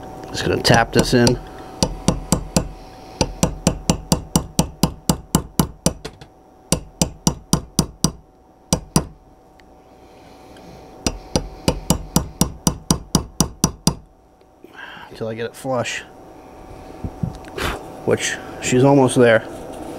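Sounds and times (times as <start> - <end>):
hammer tapping a pin punch: 0.7 - 9.2, 11.0 - 14.1.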